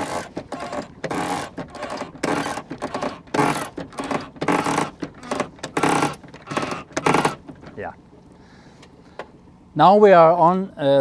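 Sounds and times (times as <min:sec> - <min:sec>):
winch clicking and grinding: 0:00.0 - 0:07.8.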